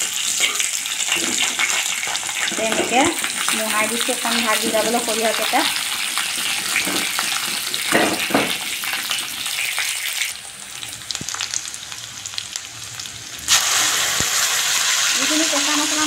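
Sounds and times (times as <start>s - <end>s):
spices sizzling in hot oil: 0.0s - 16.0s
metal ladle scraping pan: 0.3s - 3.1s.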